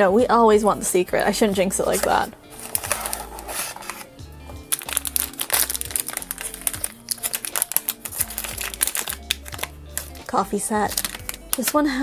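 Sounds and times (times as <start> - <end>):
background music with bass: 0.0 - 12.0
foil bag crinkling: 2.0 - 4.0, 4.6 - 11.8.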